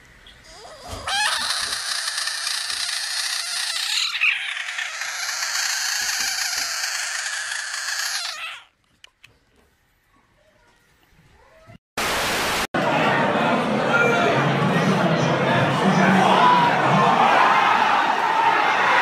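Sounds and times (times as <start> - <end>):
frog screaming: 0.5 - 8.7.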